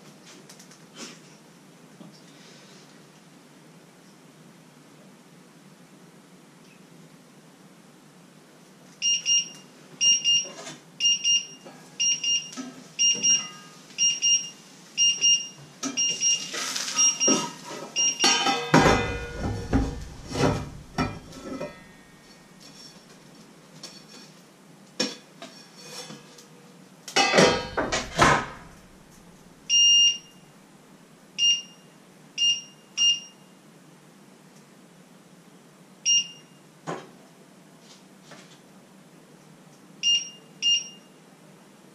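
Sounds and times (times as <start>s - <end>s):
scraping and clattering: 16.5s - 24.4s, 25.1s - 26.5s.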